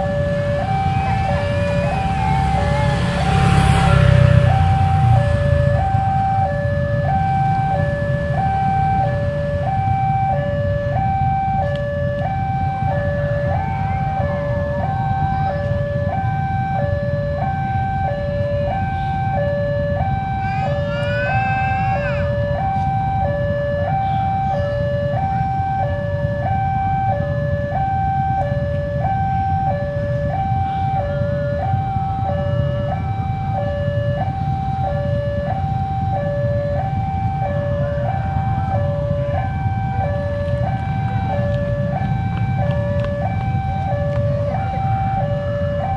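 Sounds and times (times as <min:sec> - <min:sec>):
rising whine: 0:00.0 - 0:15.2
level crossing two-tone alarm: 0:00.0 - 0:45.9.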